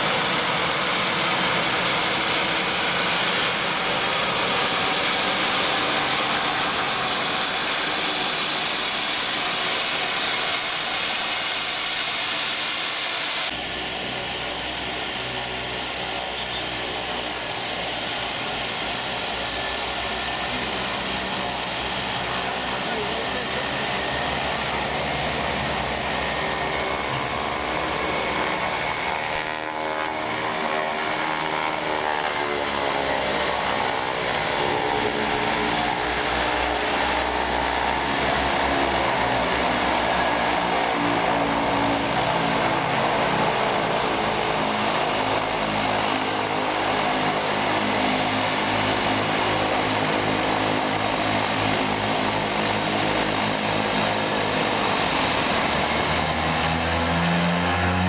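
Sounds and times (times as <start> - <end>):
turboprop engines running: 0.0 - 58.0.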